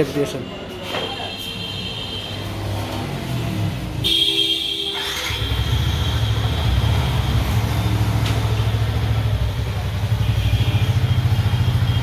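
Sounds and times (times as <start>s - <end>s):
motorcycle engine idling: 5.0s - 12.0s.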